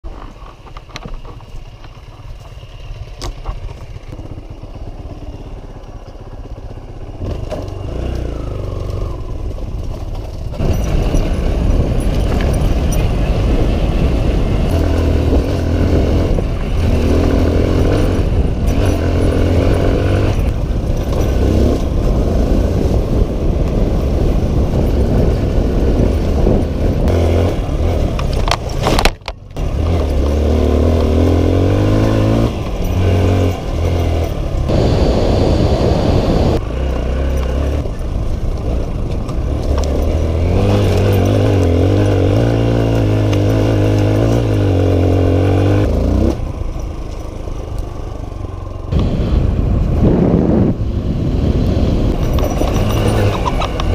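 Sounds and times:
dirt bike engine revving: 0:06.6 - 0:09.5, 0:10.4 - 0:29.0, 0:29.6 - 0:38.0, 0:39.4 - 0:46.8, 0:48.8 - 0:53.9.

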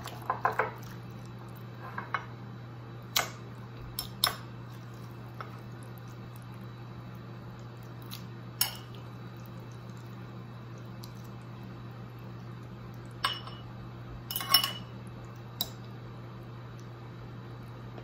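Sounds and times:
steady low hum: 0:00.0 - 0:18.0
fork clinking on glass and ceramic: 0:14.3 - 0:14.9.

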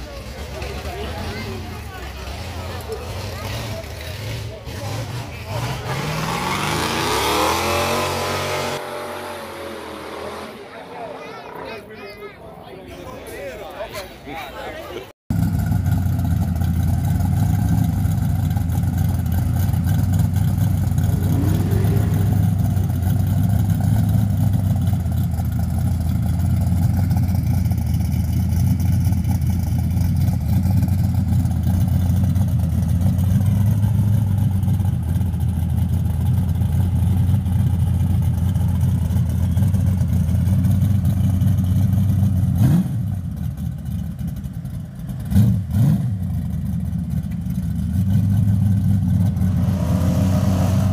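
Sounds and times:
car engine idling loudly: 0:15.3 - 0:45.4, 0:46.2 - 0:49.5.

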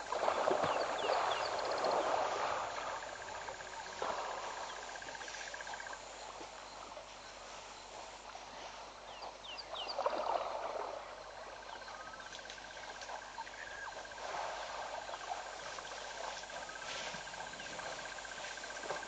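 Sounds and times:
elephant splashing in water: 0:00.0 - 0:05.9, 0:09.8 - 0:19.0.

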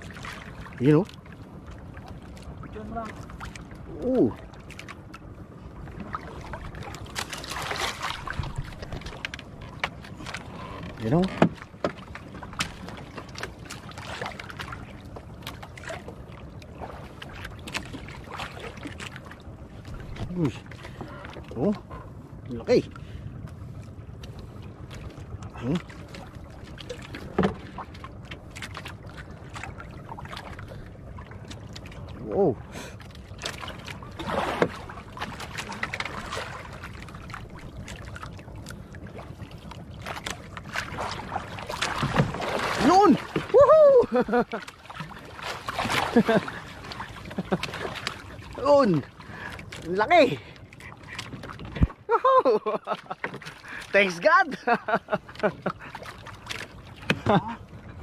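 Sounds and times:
water slapping a boat hull: 0:00.0 - 0:58.0
knocks on wooden boat: 0:11.3 - 0:12.0, 0:27.3 - 0:27.6.

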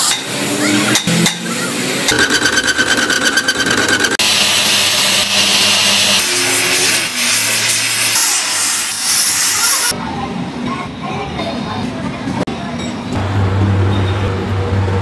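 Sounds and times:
angle grinder grinding steel: 0:01.0 - 0:09.9
power tool chattering with whine: 0:02.1 - 0:06.8
low hum: 0:13.2 - 0:15.0.

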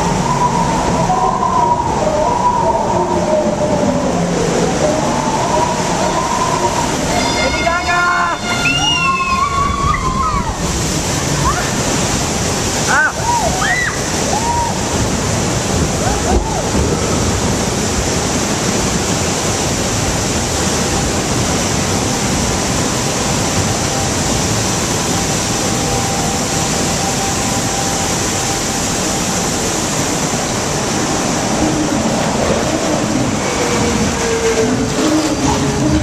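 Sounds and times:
water rushing along channel: 0:00.0 - 0:36.0.

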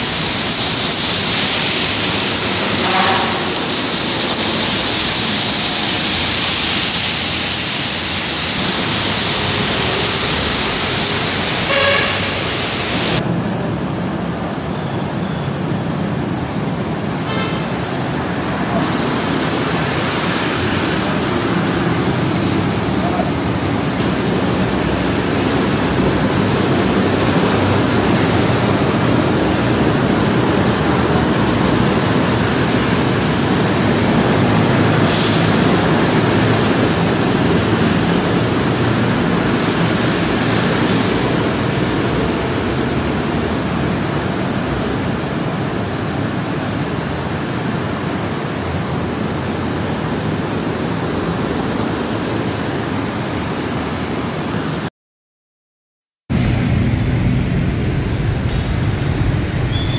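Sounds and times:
rain: 0:00.0 - 0:54.9, 0:56.3 - 0:59.9
traffic on wet road: 0:00.0 - 0:54.9, 0:56.3 - 0:59.9
car horn toot: 0:02.8 - 0:03.5, 0:11.6 - 0:13.2.

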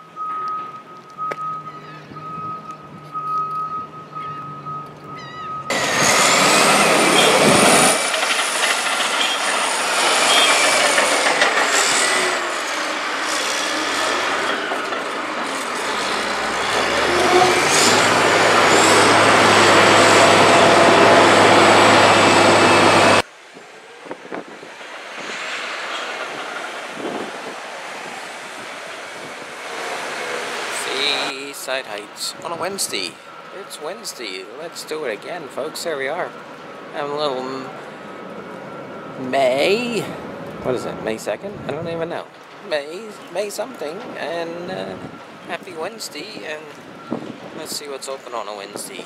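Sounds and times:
heavy machinery squeals and clanks: 0:00.0 - 0:23.2, 0:30.7 - 0:41.2, 0:41.8 - 0:49.0
bulldozer engine under load: 0:00.0 - 0:23.3, 0:31.9 - 0:47.6.

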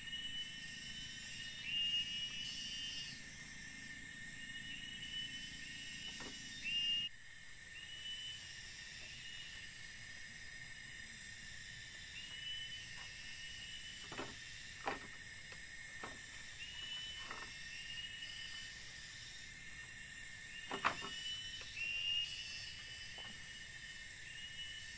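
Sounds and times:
insect drone: 0:00.0 - 0:24.9
knocks on bamboo frame: 0:14.0 - 0:15.2, 0:20.6 - 0:21.2.

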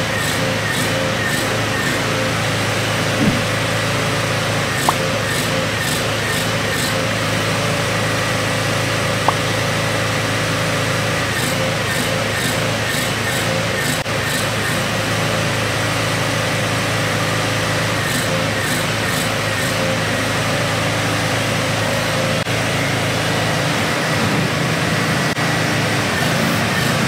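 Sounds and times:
mower engine idling: 0:00.0 - 0:27.0.

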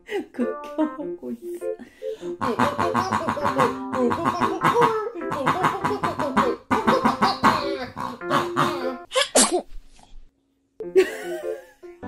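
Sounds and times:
rubber pig toy oinking: 0:02.4 - 0:09.0.

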